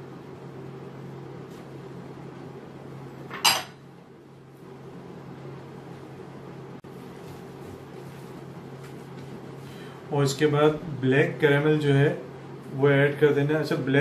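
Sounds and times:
steady low hum: 0.0s - 14.0s
glass bowl clinking: 3.3s - 3.8s.

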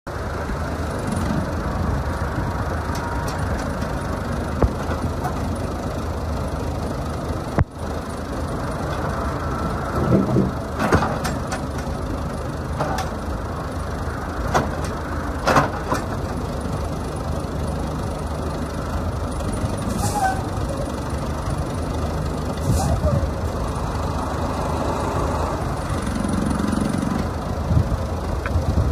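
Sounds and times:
backhoe engine idling: 0.1s - 28.9s
metal knocks and clanks: 10.0s - 12.0s.

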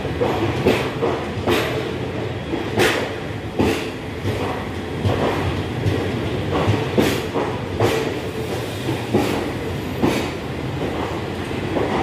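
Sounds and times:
train coaches rumbling past: 0.0s - 12.0s
wheels clacking over rail joints: 0.0s - 12.0s.

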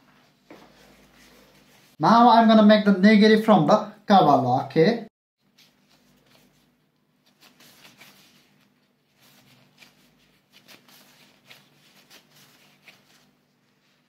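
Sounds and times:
plastic gloves rustling: 0.0s - 2.0s, 5.4s - 14.0s.

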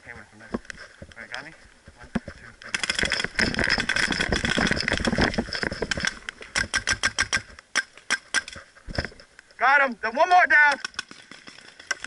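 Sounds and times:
paintball marker firing rapidly: 6.6s - 8.6s.

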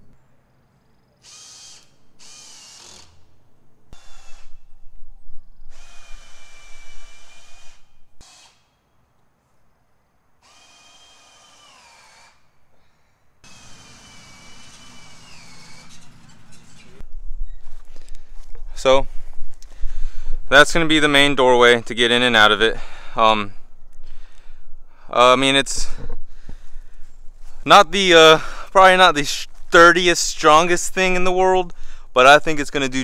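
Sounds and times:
power drill driving screws: 1.2s - 3.3s, 4.0s - 4.6s, 5.7s - 8.8s, 10.4s - 12.4s, 13.4s - 16.9s.

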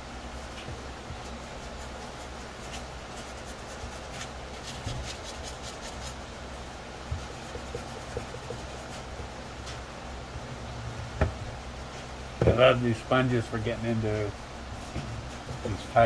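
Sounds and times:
steady low hum: 0.0s - 16.0s
sanding sponge scuffing plastic: 0.5s - 6.2s, 7.1s - 9.1s.

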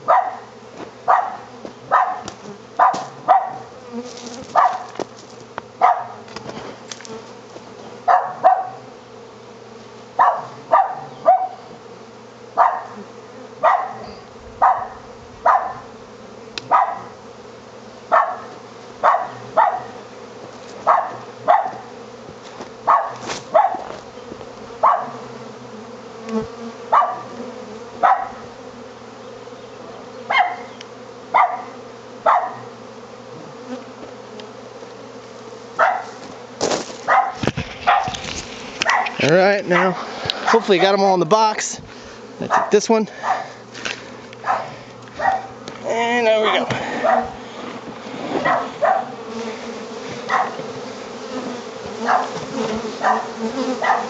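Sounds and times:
dog barking: 0.0s - 0.5s, 1.1s - 3.7s, 4.5s - 4.9s, 5.8s - 6.2s, 8.1s - 8.8s, 10.2s - 11.6s, 12.6s - 13.0s, 13.6s - 15.9s, 16.7s - 17.2s, 18.1s - 20.0s, 20.8s - 21.9s, 22.8s - 23.9s, 24.8s - 25.3s, 26.9s - 27.4s, 28.0s - 28.4s, 30.3s - 30.7s, 31.3s - 32.7s, 35.8s - 36.2s, 37.0s - 38.2s, 38.8s - 40.7s, 42.5s - 43.6s, 44.4s - 45.6s, 47.0s - 47.4s, 48.4s - 49.2s, 50.2s - 50.7s, 52.0s - 52.4s, 53.0s - 54.0s
honey bee swarm buzzing: 0.0s - 54.0s.

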